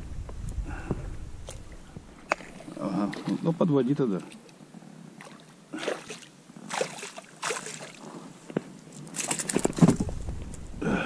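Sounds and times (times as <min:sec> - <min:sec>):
fish splashing in water: 0:05.2 - 0:08.0.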